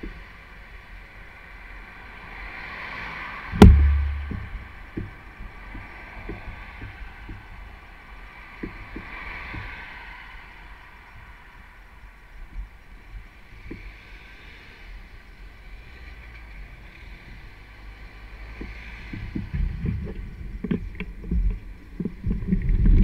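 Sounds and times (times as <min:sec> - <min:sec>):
wind noise: 0:03.5 - 0:13.8, 0:18.6 - 0:23.0
bike jolting thump: 0:03.6 - 0:04.8.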